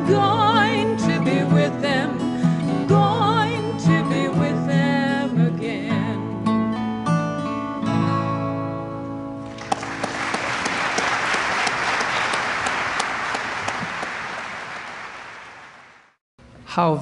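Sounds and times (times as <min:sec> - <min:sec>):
audience applause: 0:09.5 - 0:16.2.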